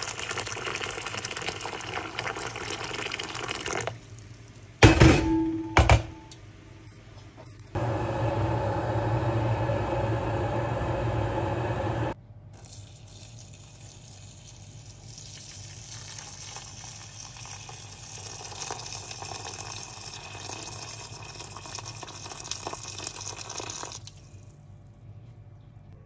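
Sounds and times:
water pouring into metal bowl: 0.0 - 4.0, 12.6 - 24.2.

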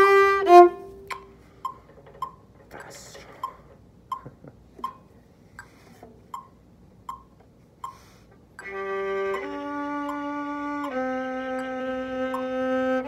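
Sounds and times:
violin bowed notes: 0.0 - 1.2, 8.6 - 13.0
metronome ticking: 0.0 - 13.0.

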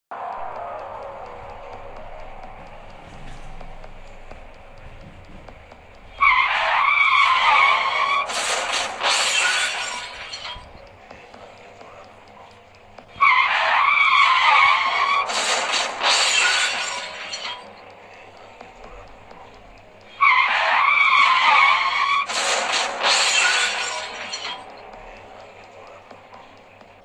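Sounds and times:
tyres screeching: 0.8 - 26.6
car crash: 6.2 - 10.7, 13.2 - 17.7, 20.2 - 24.6
glass shattering: 8.3 - 10.6, 15.3 - 17.6, 22.3 - 24.6.

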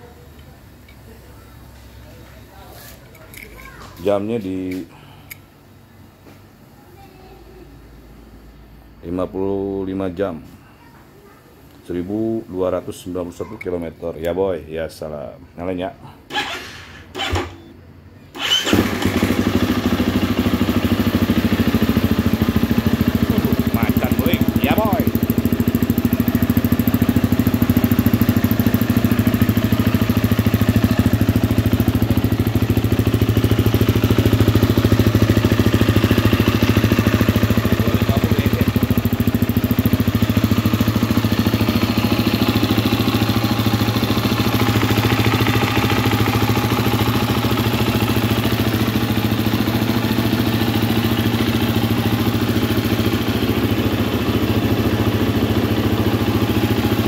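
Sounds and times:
dirt bike engine idling: 18.4 - 57.0.

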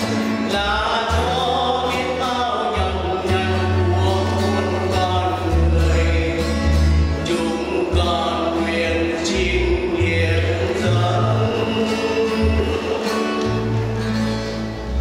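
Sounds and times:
instrumental accompaniment: 0.0 - 15.0
choir singing a hymn: 7.3 - 14.0.

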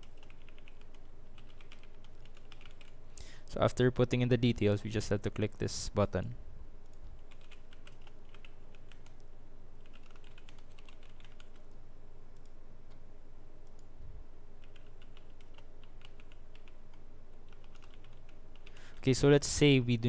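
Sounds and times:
computer keyboard typing: 0.0 - 3.0, 7.2 - 9.2, 9.8 - 11.8, 14.6 - 16.8, 17.5 - 19.1
steady low hum: 0.0 - 20.0.

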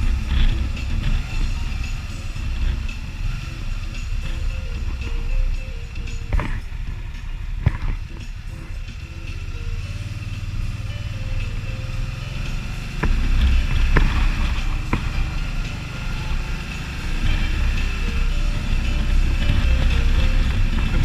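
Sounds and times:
motorcycle engine running: 0.0 - 21.0
road and wind noise: 0.0 - 21.0.

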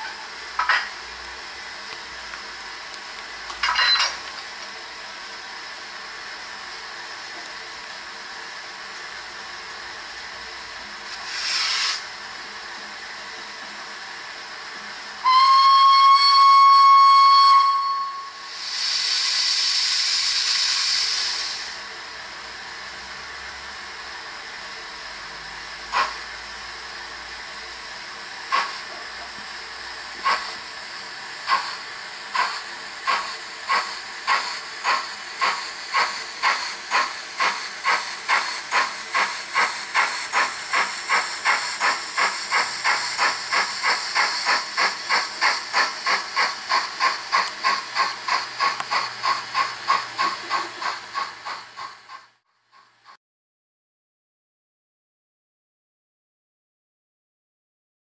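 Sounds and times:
steady steam hiss: 0.0 - 3.6, 4.2 - 52.4
steam bursts: 11.0 - 12.2, 14.1 - 53.2
steam locomotive exhaust chuffs: 14.1 - 53.2
steam whistle: 15.2 - 18.7.

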